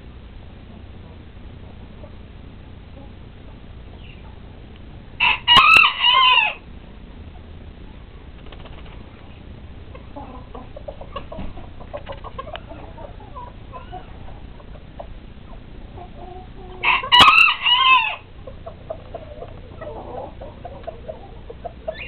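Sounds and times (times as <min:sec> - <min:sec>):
chickens clucking: 0:00.6 - 0:04.6, 0:08.3 - 0:22.0
rooster crowing: 0:05.2 - 0:06.7, 0:16.7 - 0:18.3.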